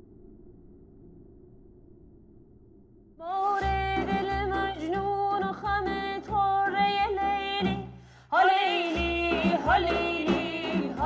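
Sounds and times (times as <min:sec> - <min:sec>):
high voice singing: 0:03.2 - 0:11.0.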